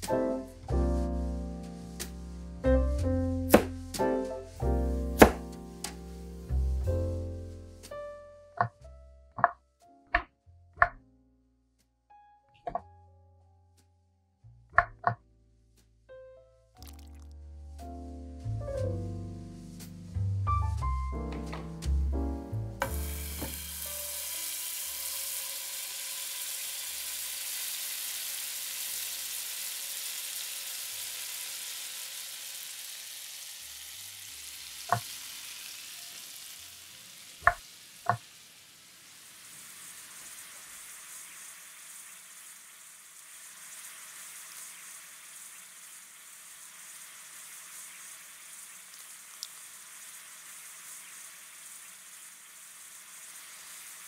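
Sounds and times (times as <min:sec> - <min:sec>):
fish sizzling in a frying pan: 0:00.0 - 0:08.0, 0:16.8 - 0:17.3, 0:22.8 - 0:54.0
sharp knocks: 0:05.2 - 0:05.5.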